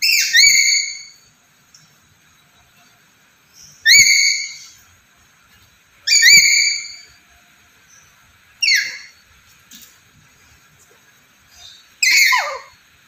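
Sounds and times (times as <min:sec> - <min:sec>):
parrot whistled calls: 0:00.0 - 0:01.2, 0:03.8 - 0:04.8, 0:06.1 - 0:07.1, 0:08.6 - 0:09.2, 0:11.6 - 0:12.8.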